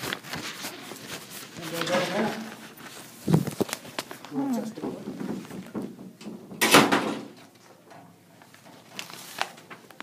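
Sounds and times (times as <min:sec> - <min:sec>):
door swinging closed: 0:04.8 - 0:07.4.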